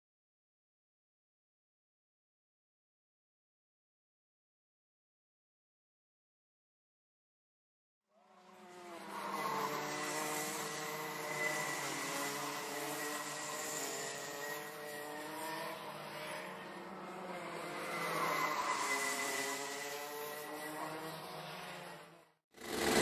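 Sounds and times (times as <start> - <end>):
kart engines racing: 8.2 - 23.0.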